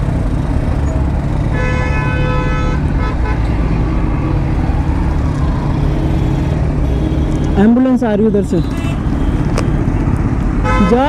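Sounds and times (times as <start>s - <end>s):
road traffic rumble: 0.0s - 11.0s
vehicle horn: 1.5s - 3.7s, 5.9s - 7.7s, 8.6s - 9.4s, 10.6s - 11.0s.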